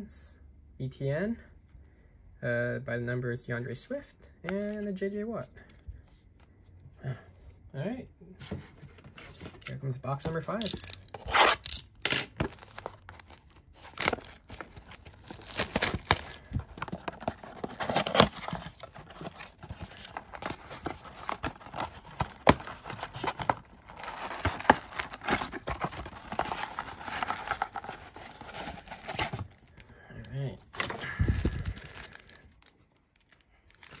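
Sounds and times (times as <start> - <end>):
wrapper crinkling and tearing: 10.6 - 29.8, 30.6 - 34.0.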